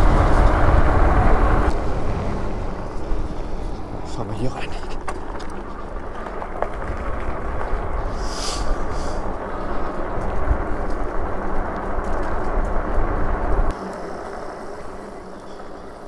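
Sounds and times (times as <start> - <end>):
wind rushing over microphone: 0.0 - 15.3
fat tyres rolling rumble: 0.0 - 16.0.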